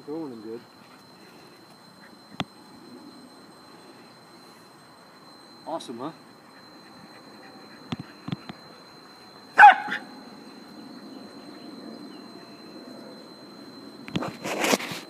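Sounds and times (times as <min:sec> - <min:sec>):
dog barking: 0:09.6 - 0:10.1.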